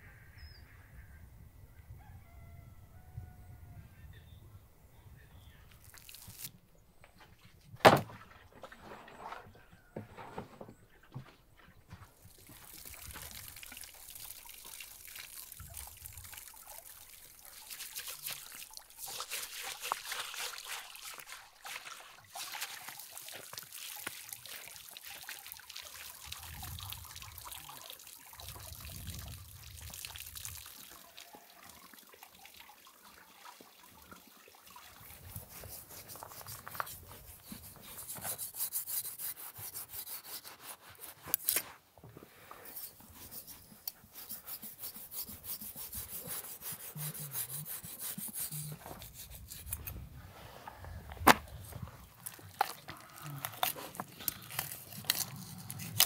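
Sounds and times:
water running from hose: 0:05.7 - 0:06.5, 0:12.2 - 0:33.0, 0:33.6 - 0:41.6, 0:42.7 - 0:49.9, 0:51.6 - 0:56.0
scouring pad rubbing skin: 0:17.7 - 0:23.0, 0:35.2 - 0:41.4, 0:42.7 - 0:49.9
knife scraping fish skin: 0:35.5 - 0:41.8, 0:42.7 - 0:50.0, 0:53.4 - 0:56.0.

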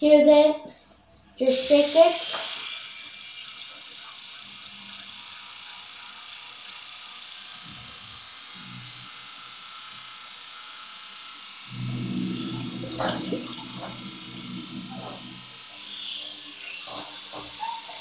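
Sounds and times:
tap water running: 0:01.4 - 0:03.1, 0:12.4 - 0:18.0
low buzzing hum: 0:11.3 - 0:17.5.

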